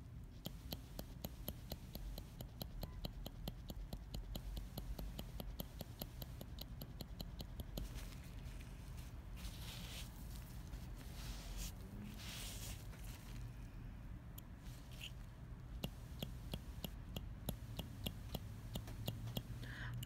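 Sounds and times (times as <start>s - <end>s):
shading needle tapping clicks: 0.3s - 8.2s, 14.3s - 20.0s
soft rustle: 7.8s - 13.8s.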